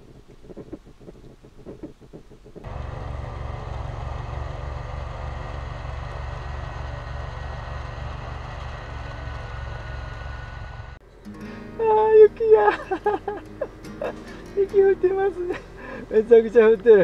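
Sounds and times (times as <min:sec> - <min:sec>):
engine running with low throb: 0:01.8 - 0:11.0.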